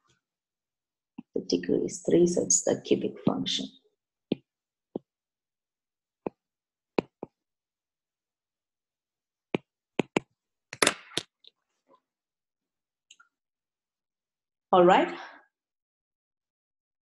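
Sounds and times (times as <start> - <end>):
stylus tapping on glass screen: 6.2 - 6.4, 7.0 - 7.4, 9.5 - 11.3.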